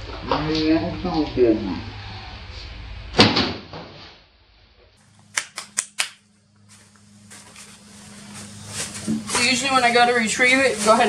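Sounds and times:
loud sharp crack: 3.1 - 4.2, 5.3 - 6.2.

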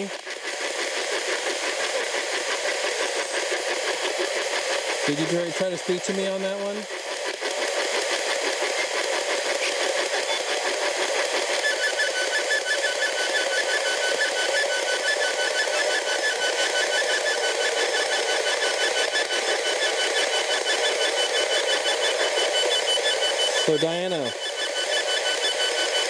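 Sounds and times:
fast high beeping pulse: 5.1 - 6.8, 11.5 - 26.0
radio static hiss chopped by sweep: 23.6 - 24.4.

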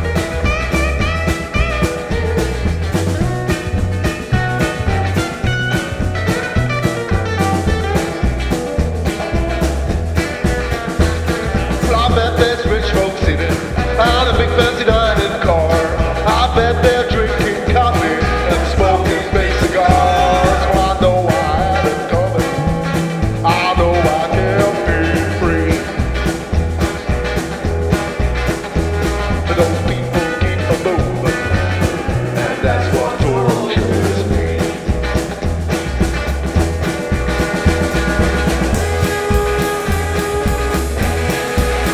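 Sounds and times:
rock band playing live: 0.0 - 41.9
male lead vocal: 11.7 - 26.2, 29.3 - 35.2.

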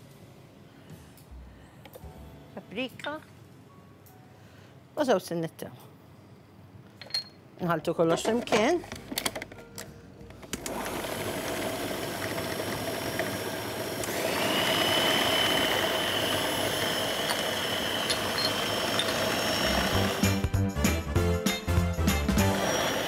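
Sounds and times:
electric kitchen mixer running: 10.6 - 20.4, 22.4 - 23.0.

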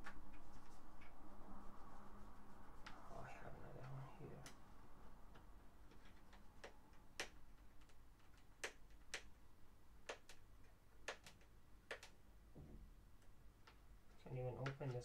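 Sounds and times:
fingers tapping cardboard box: 11.1 - 12.1.

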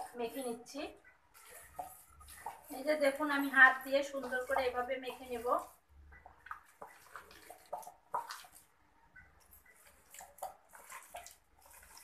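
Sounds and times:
wet squelching of fruit pulp: 0.0 - 12.0
small water splashes: 5.6 - 8.7, 9.8 - 12.0.

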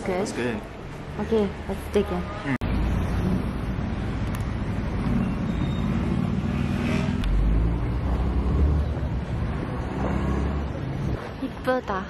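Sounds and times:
motor vehicle running close by: 4.5 - 11.3.

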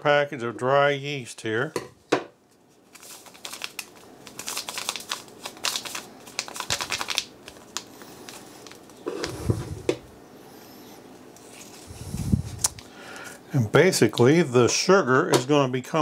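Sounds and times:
paper and foil packet crinkling: 2.7 - 9.0.

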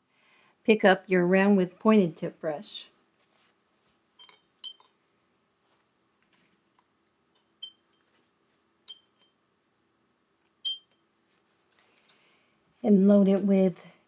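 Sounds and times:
paintbrush tapping glass jar: 4.2 - 5.0, 7.1 - 8.2, 8.9 - 9.4.

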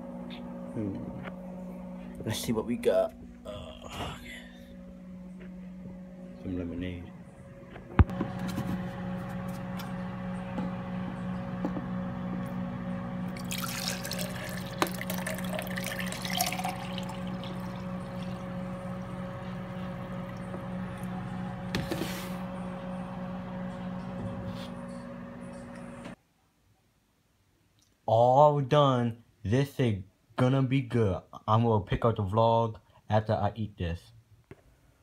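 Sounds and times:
low hum: 0.0 - 26.2
liquid pouring into plastic cup: 13.3 - 21.1.

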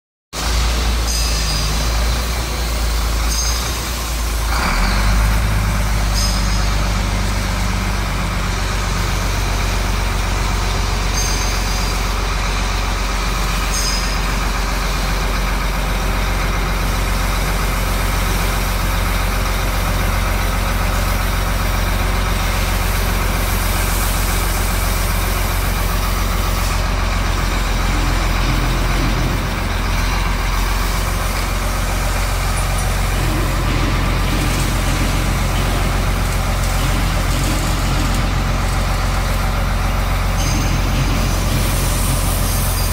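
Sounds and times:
diesel truck engine idling: 0.4 - 42.9.

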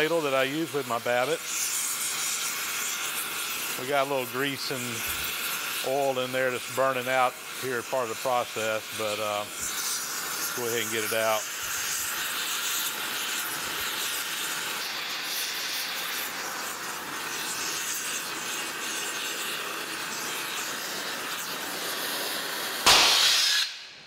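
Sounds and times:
torch flame hissing: 0.0 - 24.0
short loud burst: 22.8 - 24.0.

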